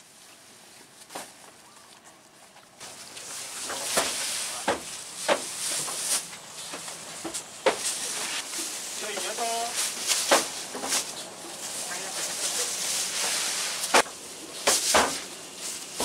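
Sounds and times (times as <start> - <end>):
plastic sacks rustling: 0.0 - 16.0
sacks dropping with thuds: 2.8 - 16.0
steady hiss: 2.8 - 16.0.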